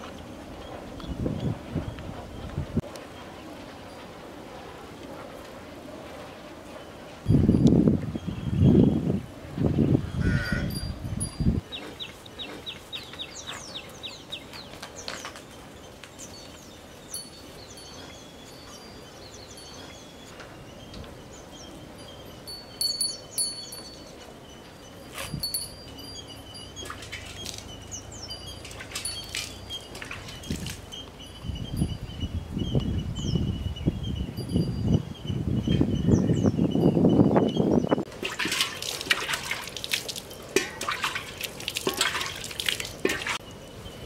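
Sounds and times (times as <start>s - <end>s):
birds chirping: 8.0s - 39.6s
water sloshing in metal basin: 26.8s - 27.8s, 28.6s - 30.8s, 38.2s - 43.4s.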